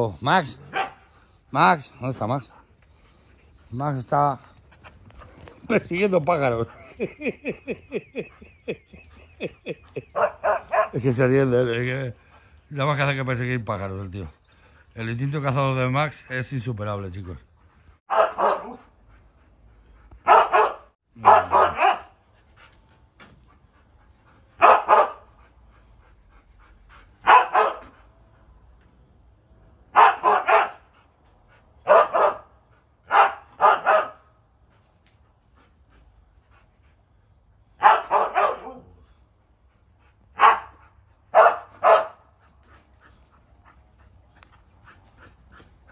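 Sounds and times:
dog barking: 0.6 - 1.0, 10.0 - 11.0, 18.1 - 18.8, 20.2 - 22.2, 24.6 - 25.3, 27.2 - 27.9, 29.9 - 30.8, 31.8 - 32.5, 33.1 - 34.3, 37.8 - 38.9, 40.4 - 42.2.

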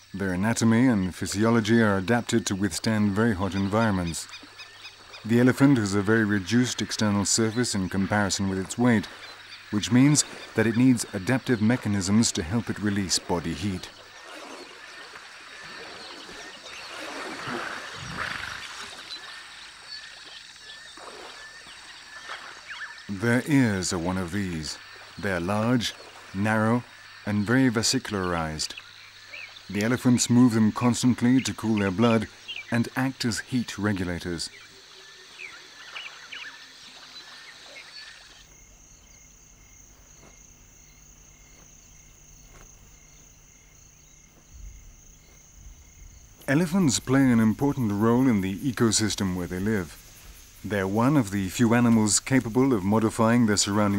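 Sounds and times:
insects trilling: 0.0 - 53.9
bird chirps: 24.5 - 33.0.

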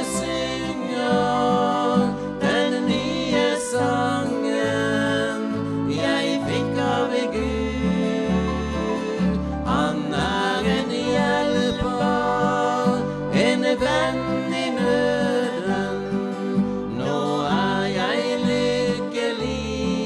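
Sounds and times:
acoustic guitar: 0.0 - 20.0
piano-accordion chords: 0.0 - 20.0
woman singing gospel song: 0.0 - 20.0.

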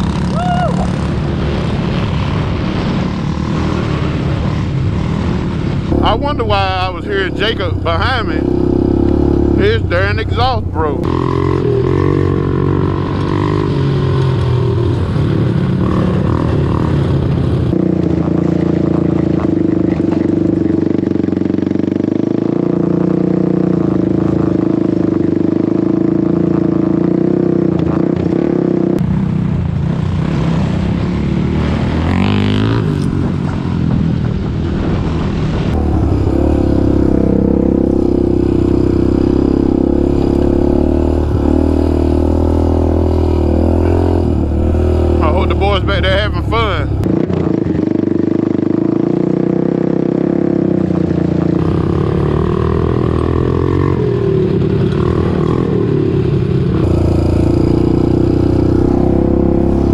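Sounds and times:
quad bike engine running: 0.0 - 59.9.

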